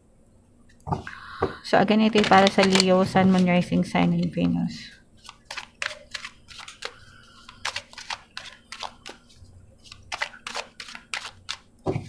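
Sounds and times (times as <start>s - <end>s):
cards being shuffled by hand: 1.9s - 4.6s, 5.2s - 12.0s.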